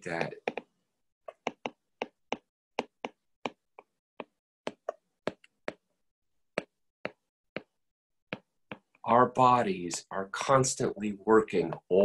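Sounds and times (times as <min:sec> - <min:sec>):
stylus tapping on screen: 0:00.0 - 0:09.0.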